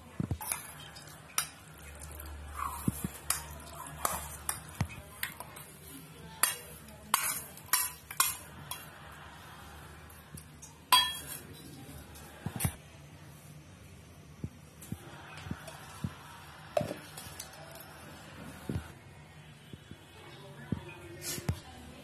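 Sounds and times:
metal spoon clinking on steel: 6.4 - 8.9, 10.6 - 11.4.

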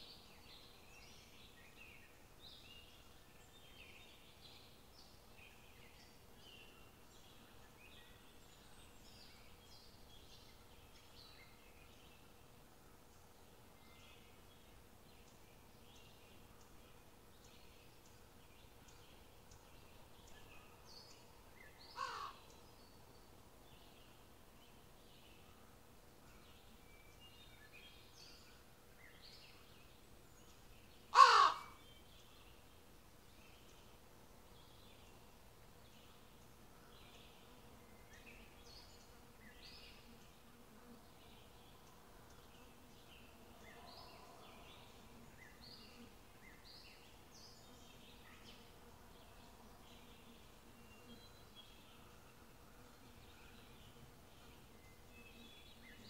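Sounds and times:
crow cawing: 22.0 - 22.4, 31.1 - 31.8.

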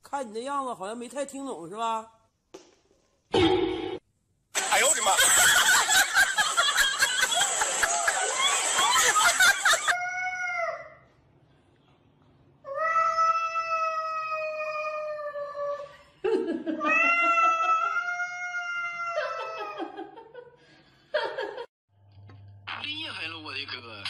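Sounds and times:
cat yowling: 16.9 - 19.7.

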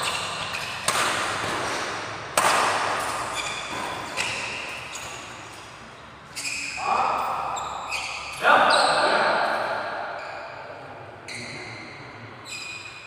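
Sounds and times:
racket hitting shuttlecock: 0.0 - 5.7.

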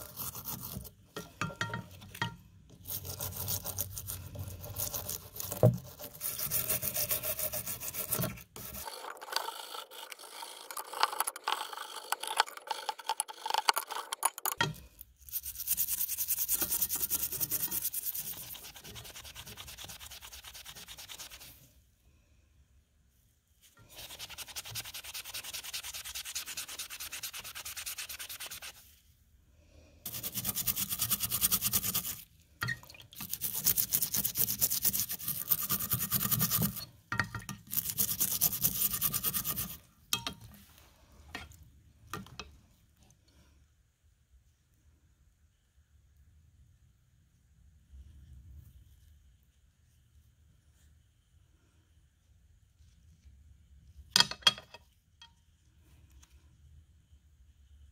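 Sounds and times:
brush scrubbing metal and wood: 0.0 - 14.3, 15.2 - 21.7, 23.8 - 28.9, 30.1 - 32.3, 33.2 - 36.9, 37.6 - 39.9.

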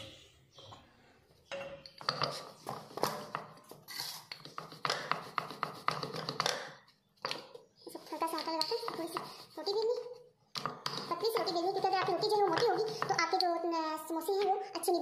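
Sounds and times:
rolling pin rolling dough: 2.1 - 6.8, 7.4 - 13.7.

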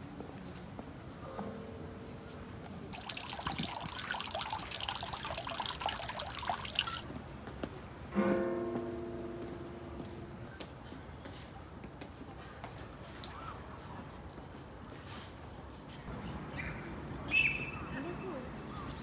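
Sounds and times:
water trickling into stone basin: 2.9 - 7.0.

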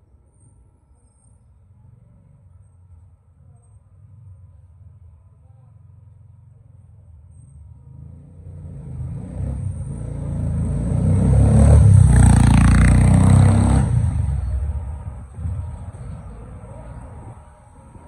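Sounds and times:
vehicle passing by: 7.8 - 18.0.

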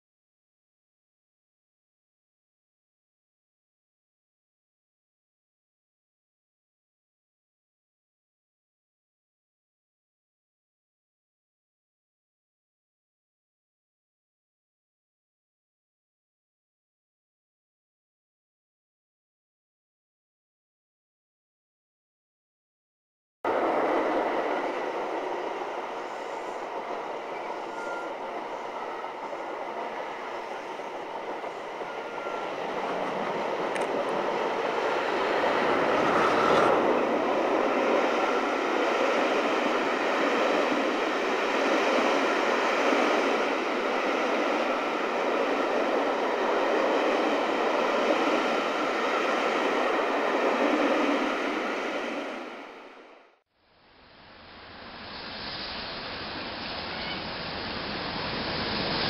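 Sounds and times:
wheels rushing on rail: 23.5 - 53.4, 54.1 - 59.0.

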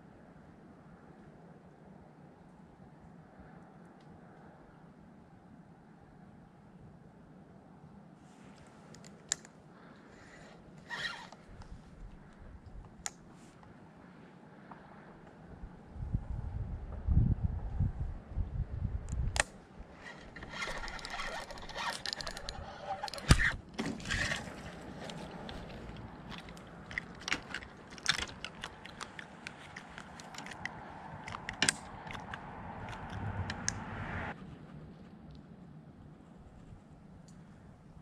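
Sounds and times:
tackle clicks and scrapes: 10.2 - 13.7, 19.1 - 35.6
wind buffeting microphone: 15.5 - 38.0
fishing reel cranking: 20.0 - 25.6.

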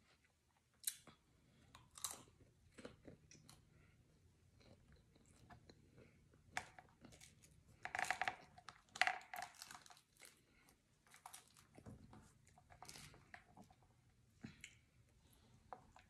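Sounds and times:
food packaging crinkling: 7.2 - 13.7.

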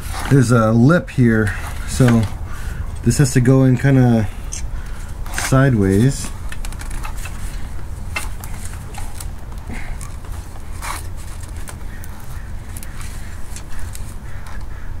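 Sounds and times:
steady low rumble: 0.0 - 15.0
small clicks and knocks: 6.5 - 10.6.

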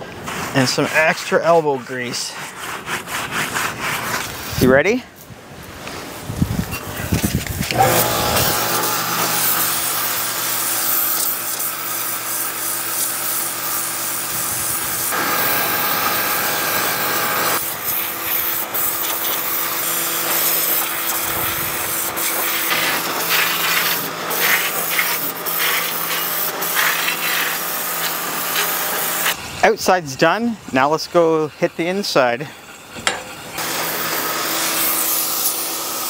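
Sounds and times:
pressure washer motor hum: 7.7 - 29.4, 33.0 - 36.0
water jet hissing: 7.7 - 30.0, 30.8 - 36.0.

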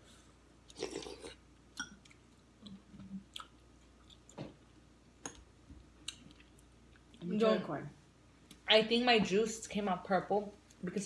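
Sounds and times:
people chewing: 0.6 - 7.2.

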